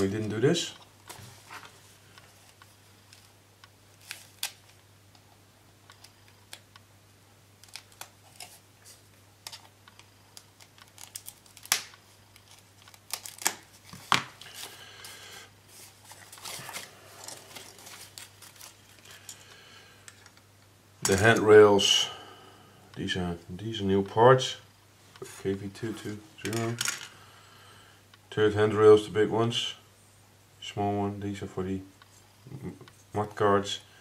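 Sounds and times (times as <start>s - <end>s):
packaging crinkling: 7.6s - 19.4s.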